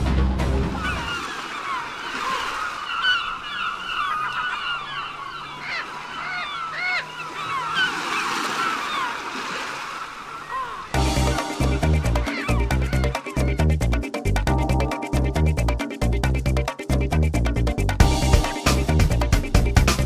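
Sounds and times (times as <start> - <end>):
flock of birds calling: 0.7 - 13.7.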